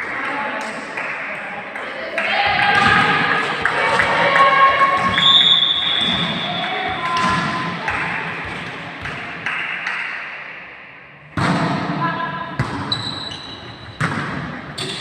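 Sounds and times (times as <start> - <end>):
players' voices: 0.0 - 9.4
shoe squeaks: 12.9 - 14.0.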